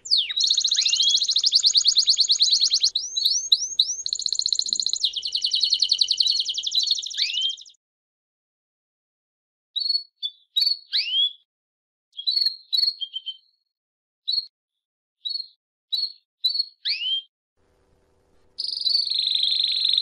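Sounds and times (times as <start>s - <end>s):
songbird singing: 0.0s - 7.8s, 18.4s - 20.0s.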